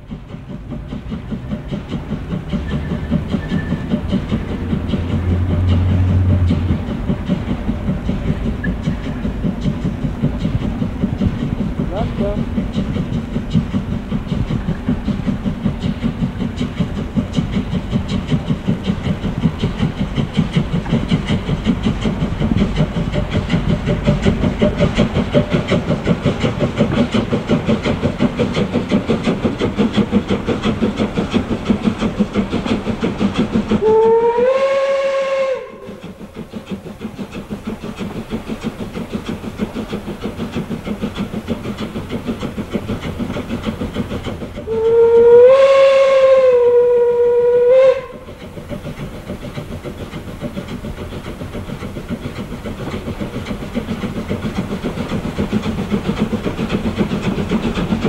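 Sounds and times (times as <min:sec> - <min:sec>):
steam locomotive exhaust beats: 0:00.0 - 0:58.0
steam whistle: 0:33.8 - 0:36.0, 0:44.7 - 0:48.3.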